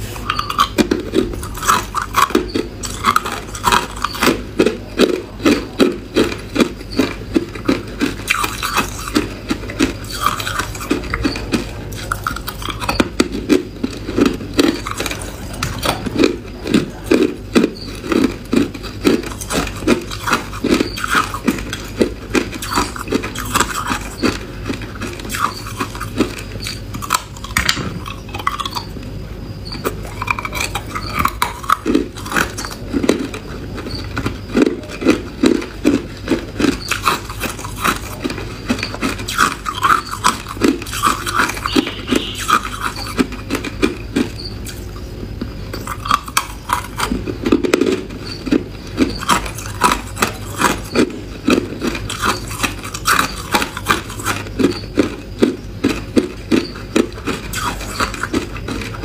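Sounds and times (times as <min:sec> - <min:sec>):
person crunching ice: 0:00.0 - 0:28.8, 0:34.5 - 0:43.6, 0:45.8 - 0:55.2.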